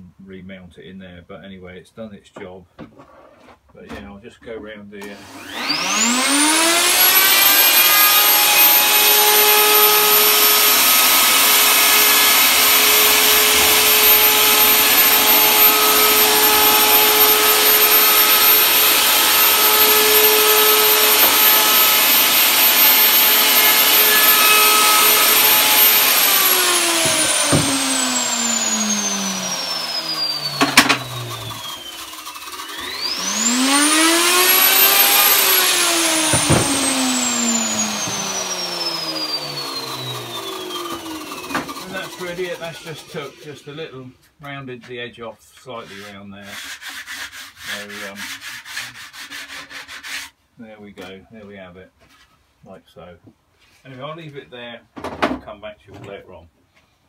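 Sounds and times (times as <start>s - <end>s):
motor whine starting: 5.1s - 43.4s
electric router running: 5.1s - 43.6s
knocks: 27.0s - 27.8s, 30.6s - 31.1s, 36.3s - 36.8s.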